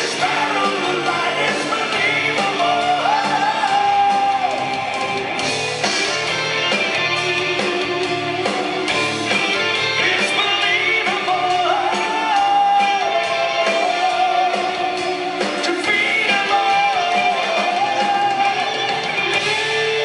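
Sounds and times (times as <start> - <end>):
male vocal singing long notes: 0.0 - 5.2, 15.7 - 18.8
bass guitar: 0.0 - 20.0
drums: 0.0 - 20.0
electric guitars: 0.0 - 20.0.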